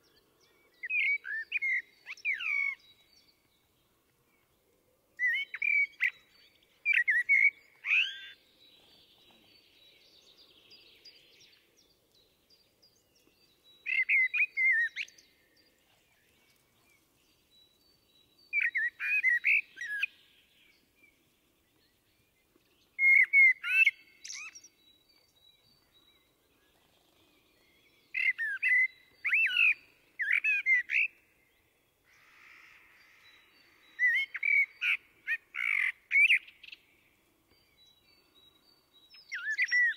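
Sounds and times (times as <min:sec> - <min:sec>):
blackbird singing: 0:00.0 - 0:04.6, 0:05.2 - 0:39.9.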